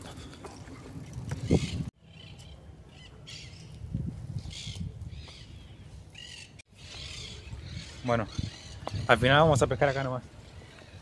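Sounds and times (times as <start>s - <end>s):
birds chirping: 4.4s - 11.0s.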